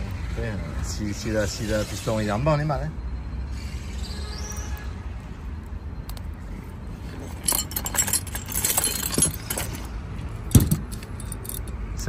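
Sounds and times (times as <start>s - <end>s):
metal hand tools clinking: 7.2s - 9.9s, 10.5s - 11.8s.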